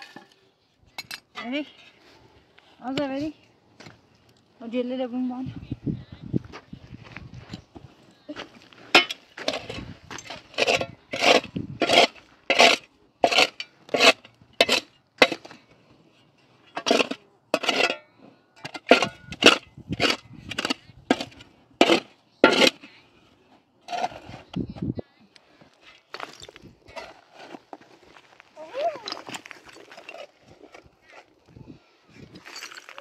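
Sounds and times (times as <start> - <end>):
hand shovel scraping stony soil: 8.3 - 15.6, 16.6 - 18.0, 18.7 - 24.8, 25.7 - 33.0.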